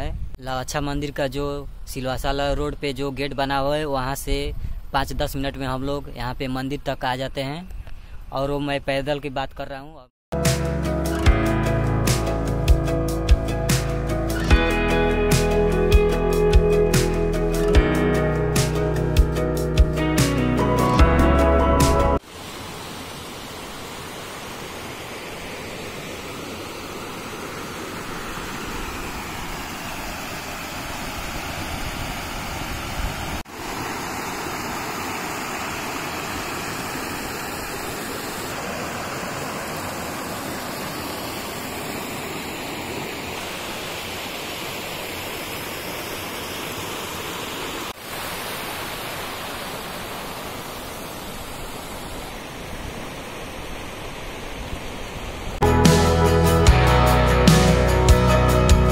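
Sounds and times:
river water rushing over rocks: 22.2 - 55.6.

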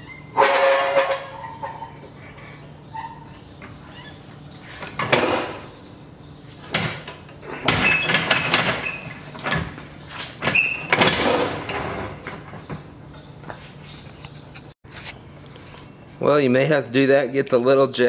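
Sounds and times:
short squeaks: 0.0 - 5.8, 6.4 - 12.7
floor jack wheels rolling on concrete: 0.0 - 14.4
metal rattles: 6.5 - 13.3.

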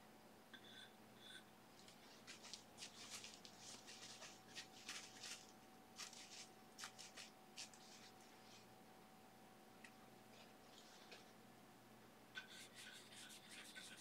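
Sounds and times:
faint electrical hum: 0.0 - 14.0
brush scratching a surface: 2.2 - 8.7, 12.6 - 14.0.

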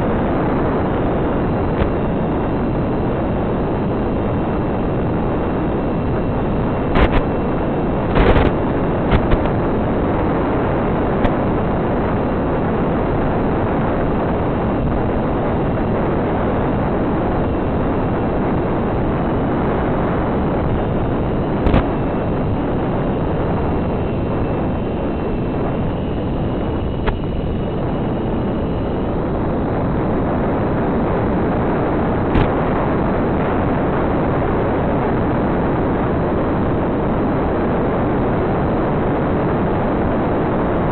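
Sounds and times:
sharp crackles: 6.7 - 12.7, 18.6 - 34.6.

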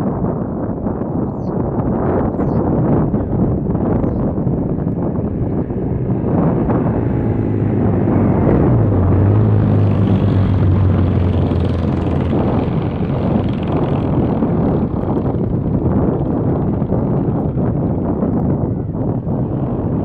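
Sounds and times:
wind rumbling on microphone: 0.0 - 20.0
passing motor engine drone: 4.3 - 20.0.

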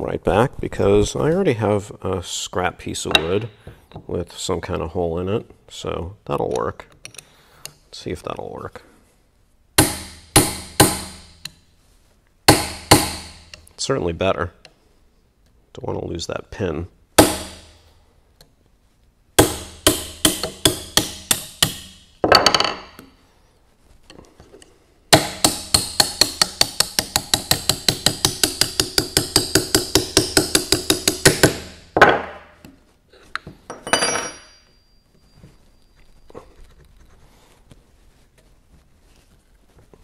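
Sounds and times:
hammer tapping on metal: 25.2 - 31.6.

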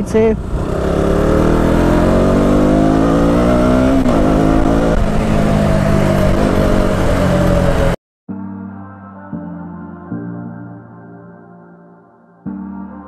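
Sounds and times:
motorcycle engine accelerating: 0.0 - 8.0.

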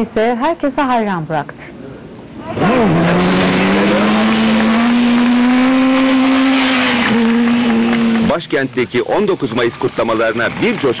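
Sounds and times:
motorcycle engine running hard: 2.5 - 8.4.

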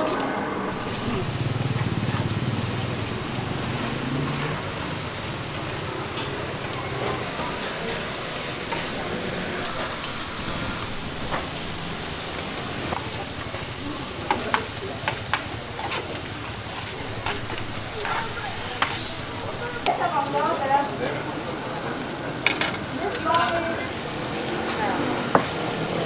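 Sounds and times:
street food stall din: 0.0 - 26.0
high-pitched whistle: 14.3 - 17.3.

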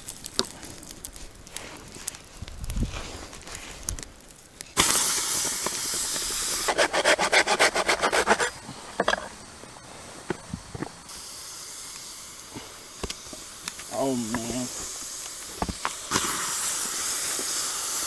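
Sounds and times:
hot stone hissing in water: 4.6 - 18.0.

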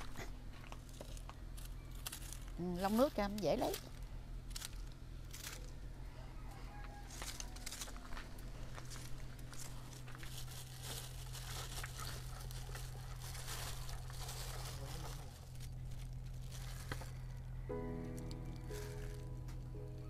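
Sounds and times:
steady low hum: 0.0 - 20.0
crinkling rustling handling: 6.8 - 20.0.

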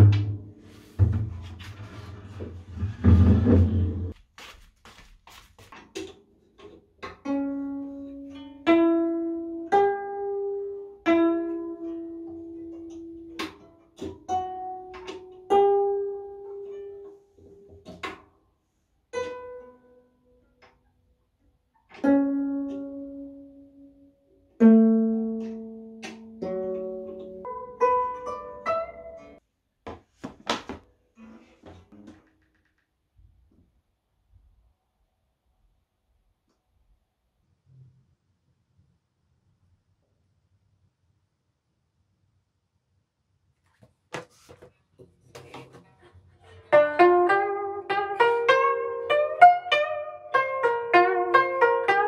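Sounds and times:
plucked zither melody: 0.0 - 1.5, 6.6 - 18.2, 19.1 - 20.7, 21.9 - 29.4, 46.5 - 52.0.

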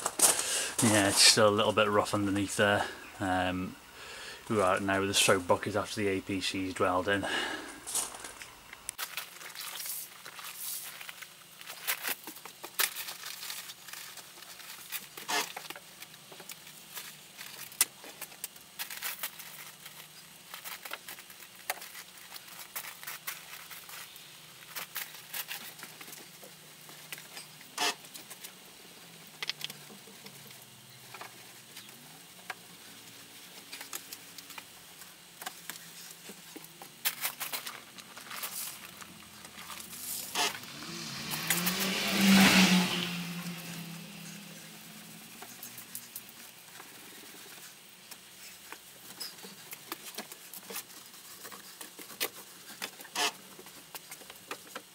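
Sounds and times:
wash mitt scrubbing van paintwork: 0.0 - 3.0.

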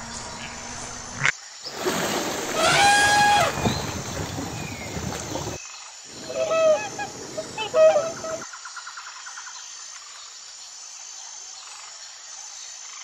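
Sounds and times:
water splashing: 1.7 - 8.4
cranes honking: 1.8 - 8.4
long high bird call: 2.5 - 8.4.

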